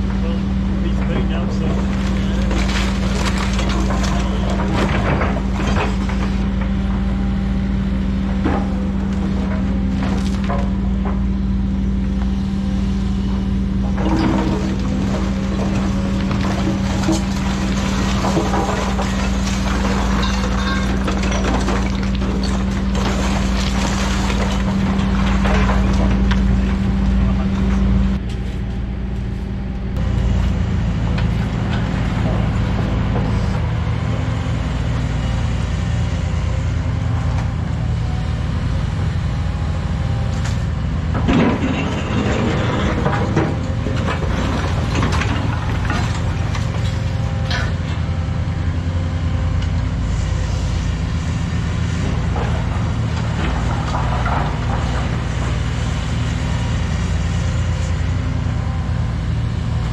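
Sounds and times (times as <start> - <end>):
excavator engine drone: 0.0 - 59.9
rubble clattering and scraping: 0.1 - 12.4, 13.4 - 28.5, 41.0 - 58.0.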